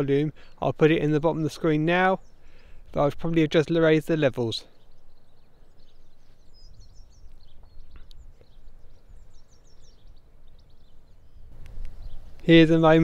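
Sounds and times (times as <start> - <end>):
bird chirping: 0.0 - 13.0
muffled wind rumble: 5.0 - 13.0.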